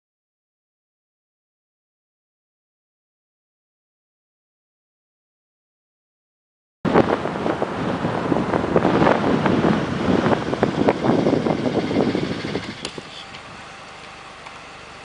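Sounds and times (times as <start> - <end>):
wind buffeting microphone: 6.9 - 13.9
steady outdoor hum: 6.9 - 15.0.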